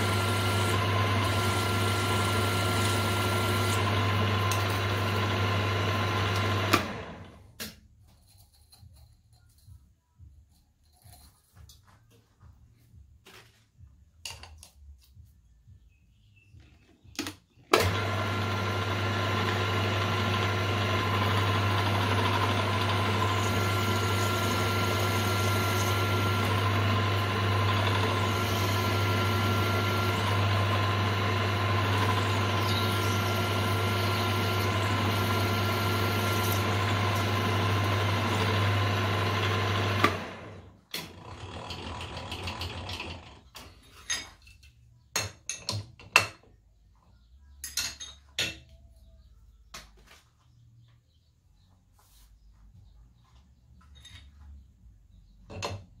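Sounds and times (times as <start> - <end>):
milling machine running: 0.0 - 7.4, 17.8 - 43.1.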